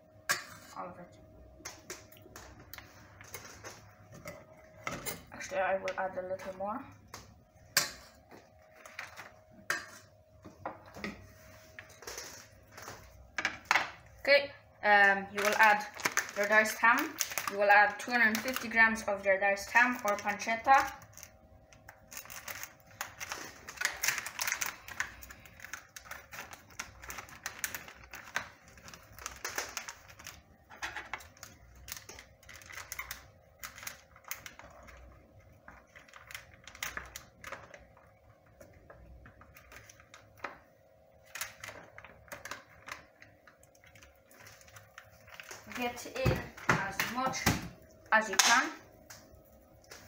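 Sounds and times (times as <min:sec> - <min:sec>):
plastic packet crinkling: 0:14.8 - 0:47.3.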